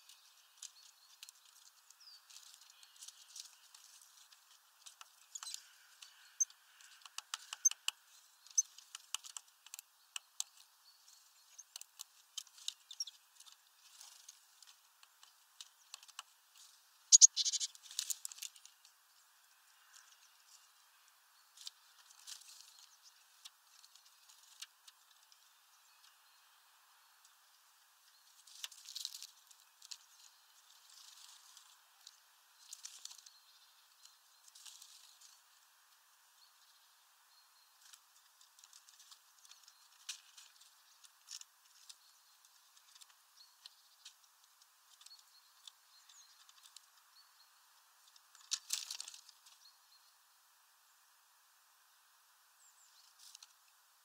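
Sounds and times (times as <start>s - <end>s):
beaks tapping and pecking nuts: 0.0s - 19.0s, 21.5s - 26.2s, 28.0s - 36.0s, 37.7s - 47.1s, 48.0s - 49.6s
high bird chirps: 5.2s - 9.2s, 17.1s - 17.8s.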